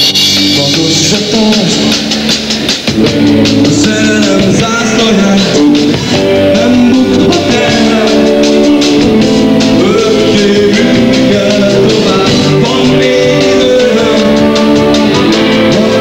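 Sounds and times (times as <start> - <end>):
drum kit: 0.0 - 16.0
electric guitars: 0.0 - 16.0.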